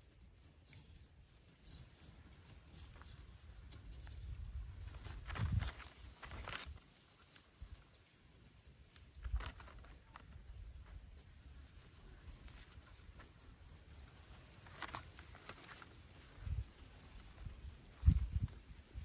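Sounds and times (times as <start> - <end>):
insect chirping in high trills: 0.0 - 1.0, 1.6 - 19.0
fish rustling in bamboo basket: 14.3 - 16.4.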